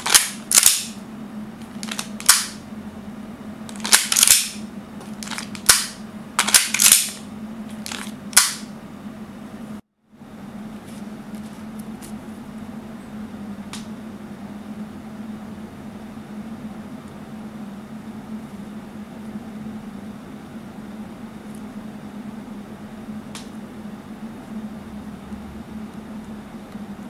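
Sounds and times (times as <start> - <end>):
airsoft pistol cracks: 0.1 - 1.0, 8.4 - 8.7.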